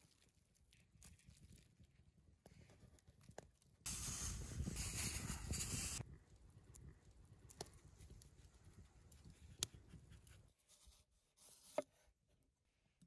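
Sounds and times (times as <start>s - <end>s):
fire hissing and rushing: 3.9s - 6.0s.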